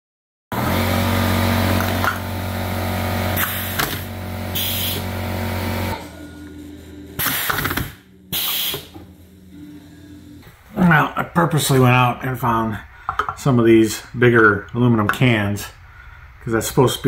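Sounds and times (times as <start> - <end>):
machine hum: 0.5 - 15.0
compressed air hissing: 3.4 - 5.1, 7.0 - 9.0.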